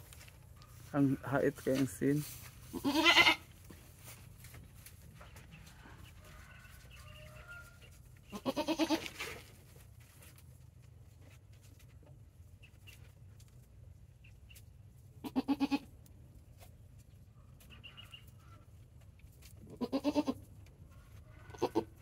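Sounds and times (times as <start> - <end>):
goat bleating: 2.7 - 3.5, 8.3 - 9.3, 15.2 - 15.9, 19.6 - 20.5, 21.4 - 22.0.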